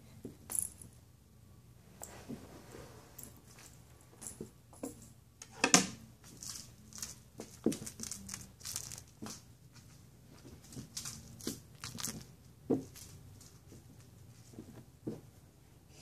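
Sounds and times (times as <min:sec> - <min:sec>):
string toy rustling: 0:06.1 - 0:15.5.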